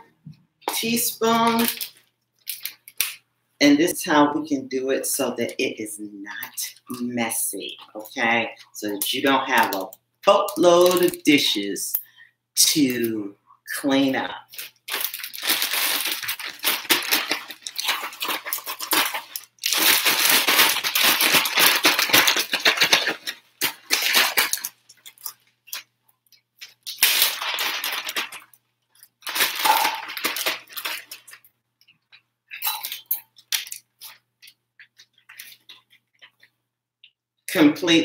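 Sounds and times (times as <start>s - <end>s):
plastic bag crinkling: 0.6s - 3.2s, 6.4s - 11.6s, 14.1s - 36.5s.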